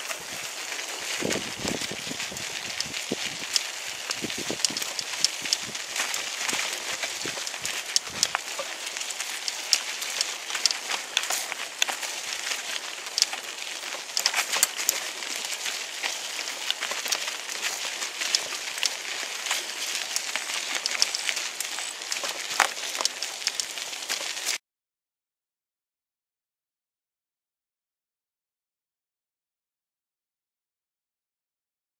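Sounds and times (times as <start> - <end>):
bicycle tyres rolling over dry leaves: 0.0 - 24.6.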